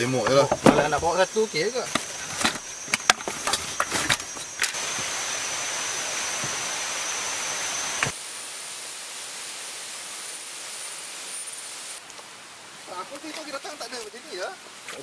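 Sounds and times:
high-pitched insect drone: 0.0s - 12.0s
even hiss: 0.0s - 15.0s.

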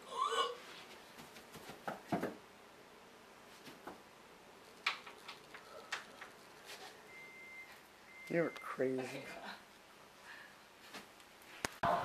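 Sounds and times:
knocks and thumps of person moving: 0.8s - 2.4s, 3.5s - 4.0s.

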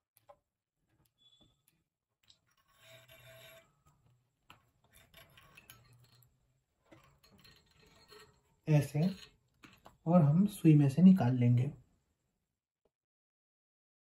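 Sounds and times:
light rubbing and small clicks: 1.0s - 10.6s
thread drawn through guides: 1.0s - 10.6s.

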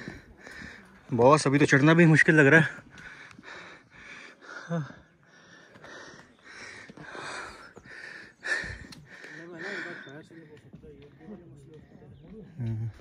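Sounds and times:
person breathing hard: 2.9s - 10.1s.

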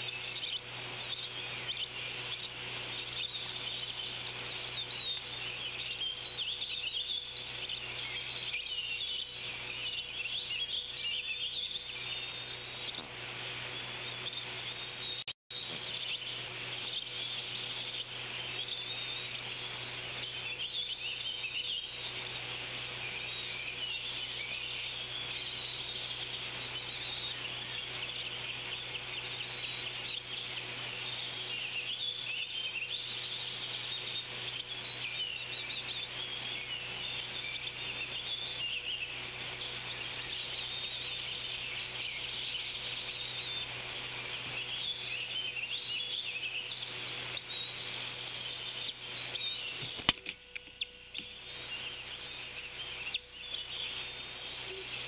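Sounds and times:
rising bird whistles: 0.0s - 55.0s
small birds chirping and singing: 0.0s - 55.0s
steady low hum: 0.0s - 55.0s
sharp click: 49.8s - 51.4s.

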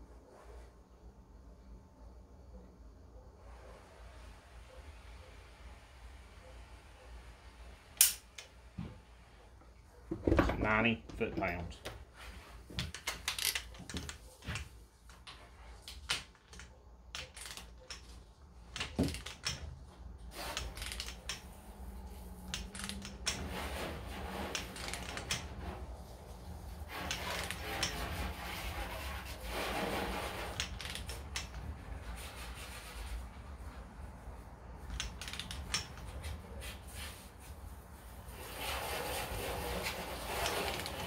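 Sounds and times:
torque wrench clicking: 8.0s - 8.4s.

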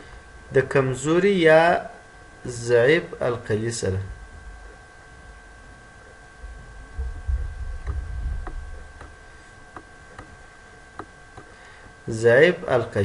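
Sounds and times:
faint electrical hum: 0.0s - 13.0s
low rumble: 6.4s - 9.0s.

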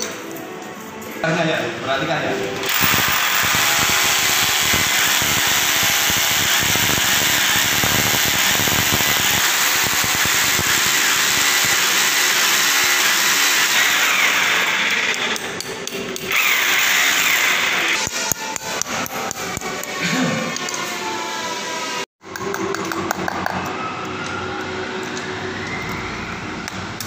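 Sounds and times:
hammer drill boring into concrete: 2.6s - 20.8s.

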